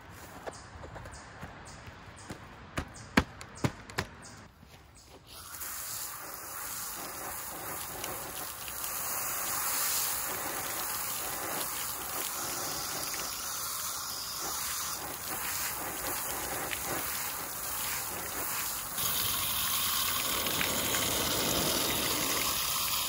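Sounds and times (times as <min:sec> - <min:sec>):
hose spraying water on shingles: 0:05.3 - 0:23.0.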